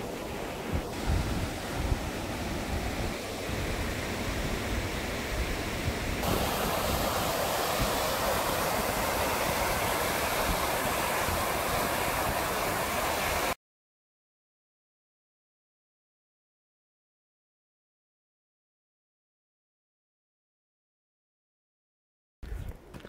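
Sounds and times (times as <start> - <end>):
stream rushing over rocks: 0.0 - 13.6
wind rumbling on microphone: 0.0 - 13.6.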